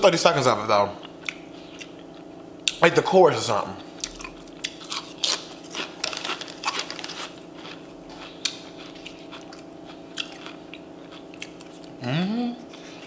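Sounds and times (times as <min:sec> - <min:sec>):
person crunching chips: 0:04.0 - 0:12.0.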